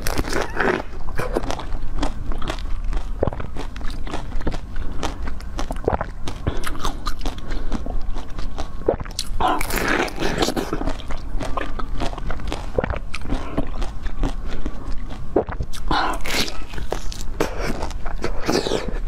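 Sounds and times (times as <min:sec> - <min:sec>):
biting into dessert: 0:00.0 - 0:19.0
chewing: 0:00.0 - 0:19.0
wet mouth clicks: 0:15.4 - 0:18.8.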